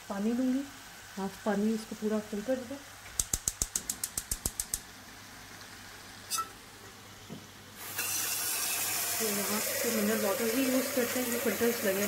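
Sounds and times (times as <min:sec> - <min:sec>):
gas hob igniter clicking: 0:03.2 - 0:04.9
tap water running into kettle: 0:07.8 - 0:12.0.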